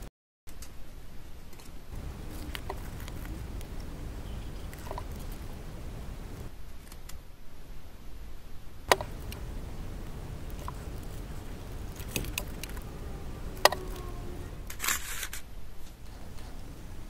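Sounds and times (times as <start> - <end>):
steady low rumble: 1.9 - 6.6, 8.9 - 14.8.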